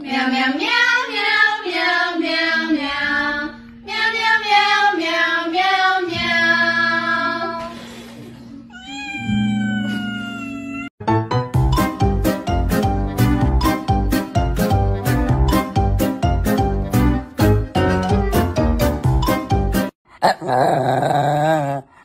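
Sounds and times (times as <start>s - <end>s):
breathy puff blowing candles: 7.6s - 8.6s
jingly music: 11.1s - 19.9s.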